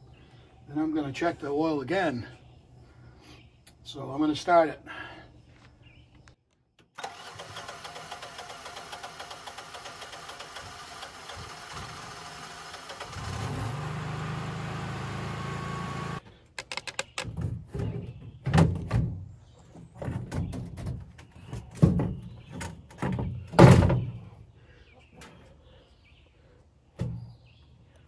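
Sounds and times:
generator engine running: 7.0s - 16.2s
metal panel knocks and thunks: 17.3s - 19.3s, 20.0s - 24.2s.

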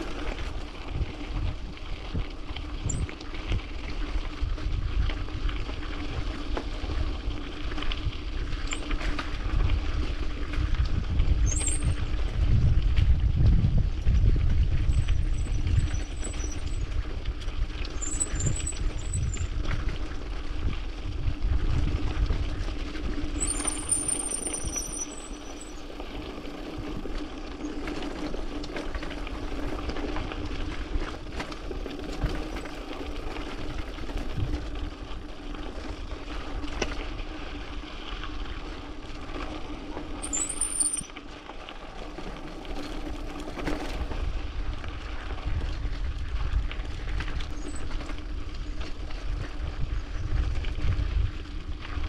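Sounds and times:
wind rushing on microphone: 7.8s - 25.7s, 33.6s - 34.9s, 43.8s - 52.0s
short high-pitched squeals: 11.5s - 12.0s, 15.0s - 16.8s, 17.9s - 19.5s, 23.4s - 25.9s, 40.2s - 41.1s.

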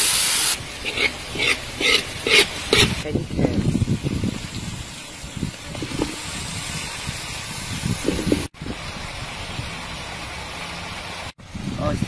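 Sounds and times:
vegetables sizzling in a wok: 0.0s - 8.5s.

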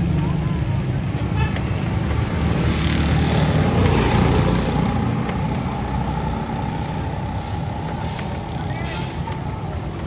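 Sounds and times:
street traffic: 0.0s - 10.0s
vehicle engine running: 2.8s - 10.0s.

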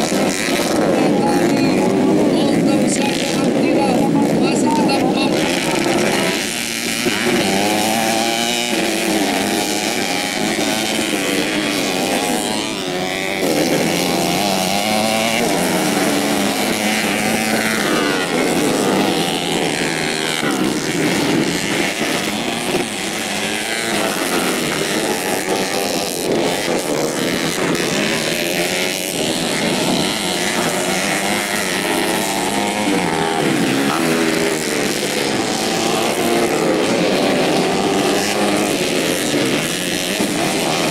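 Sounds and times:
motorcycle engines racing: 0.0s - 40.9s.

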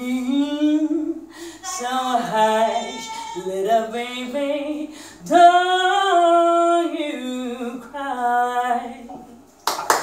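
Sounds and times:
woman singing unaccompanied: 0.0s - 9.4s.

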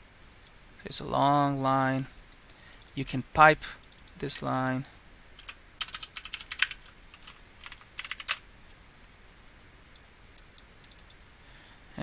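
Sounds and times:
typing on computer keyboard: 5.4s - 8.4s, 10.8s - 11.2s.

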